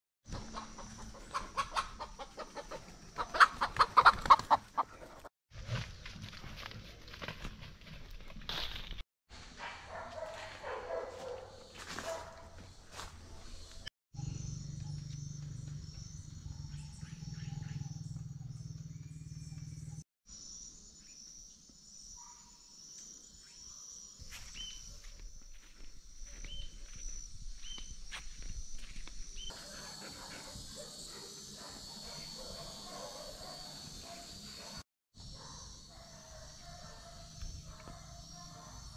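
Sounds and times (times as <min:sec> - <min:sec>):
chickens clucking: 0:00.3 - 0:05.3
insects trilling: 0:12.7 - 0:38.9
bird chirps: 0:13.6 - 0:20.0, 0:22.1 - 0:25.0, 0:26.4 - 0:28.0.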